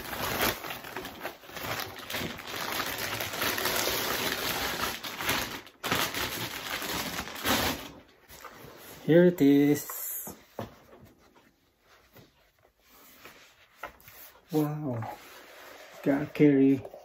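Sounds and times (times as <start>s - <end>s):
plastic bag rustling and crinkling: 0.0s - 10.3s.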